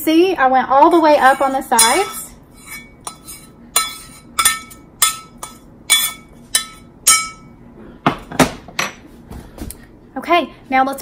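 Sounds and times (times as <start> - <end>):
spoon clinking on skillet: 0.9 - 7.5.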